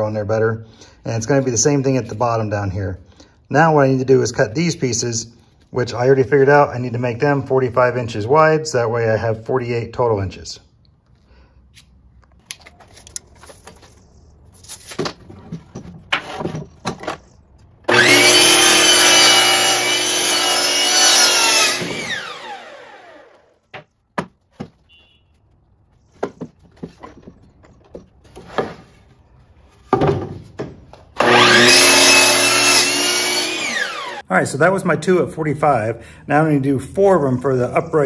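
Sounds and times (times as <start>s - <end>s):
miter saw cutting wood: 17.9s - 23.6s, 31.2s - 34.2s.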